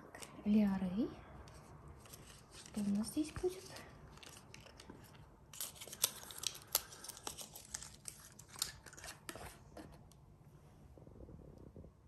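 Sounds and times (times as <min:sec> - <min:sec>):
small cardboard box opened: 0:03.6 - 0:10.0.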